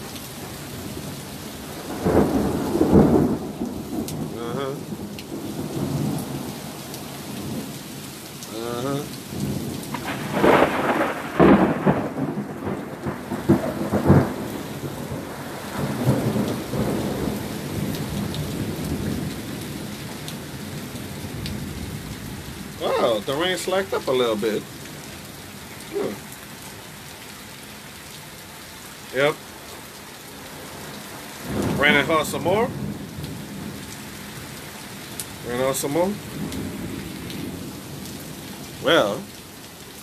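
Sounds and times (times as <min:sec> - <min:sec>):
heavy rain pouring: 0:00.0 - 0:40.0
thunder rumbling: 0:01.7 - 0:07.8, 0:08.6 - 0:25.1, 0:30.7 - 0:34.0.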